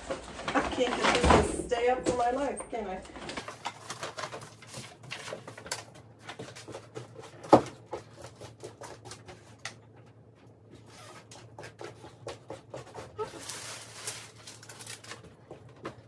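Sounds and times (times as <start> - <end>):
household items clicking and knocking: 0.0 - 10.2.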